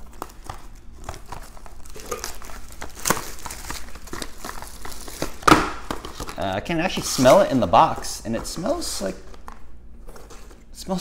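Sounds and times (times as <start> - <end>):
plastic shrink wrap crinkling: 0.0 - 10.7.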